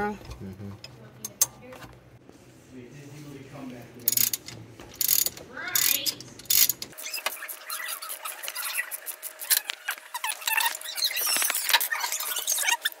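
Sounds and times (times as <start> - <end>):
metal tools clinking: 4.0 - 7.0
socket ratchet clicking: 4.1 - 7.0
short squeaks: 5.8 - 13.0.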